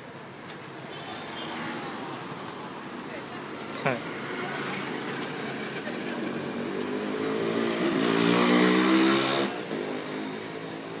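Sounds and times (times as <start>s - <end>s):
street noise: 0.0s - 11.0s
motorbike engine revving: 6.3s - 10.9s.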